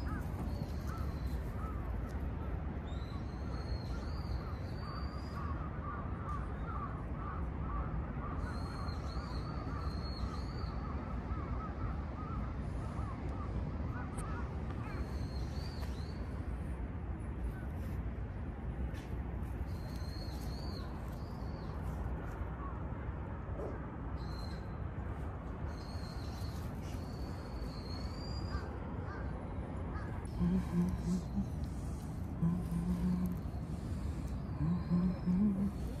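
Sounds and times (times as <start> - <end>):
birds calling and chattering: 0.0 - 16.4, 25.6 - 36.0
low outdoor rumble: 0.0 - 36.0.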